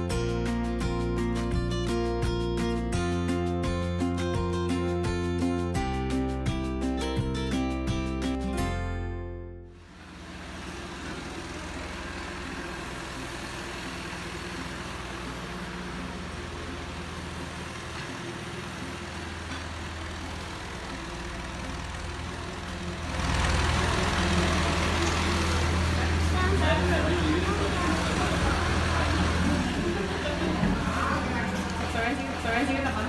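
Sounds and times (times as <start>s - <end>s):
tractor engine idling: 9.8s - 33.0s.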